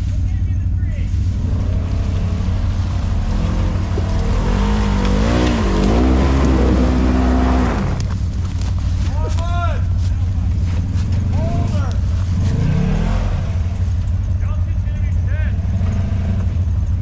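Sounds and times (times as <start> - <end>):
utv engine revving under load: 1.3 - 8.1, 11.2 - 14.3, 15.6 - 16.7.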